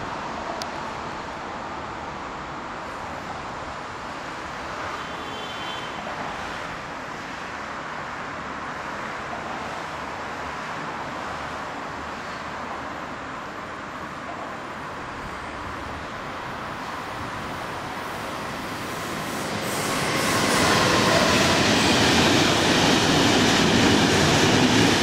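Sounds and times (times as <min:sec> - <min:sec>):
city traffic hiss: 0:00.0 - 0:25.0.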